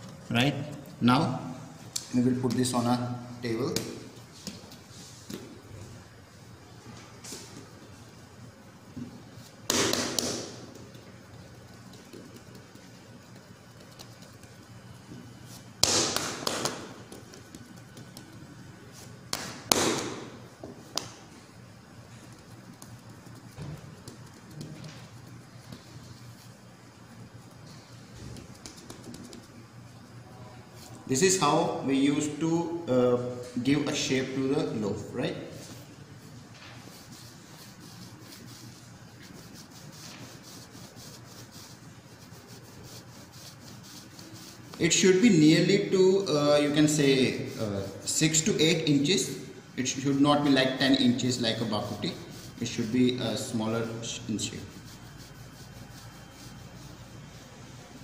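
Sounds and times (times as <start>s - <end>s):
hands rolling dough on countertop: 3.6s - 6.1s, 6.9s - 31.4s, 35.5s - 58.0s
hands slapping dough on stone: 9.6s - 10.6s, 15.8s - 18.4s, 19.3s - 21.3s.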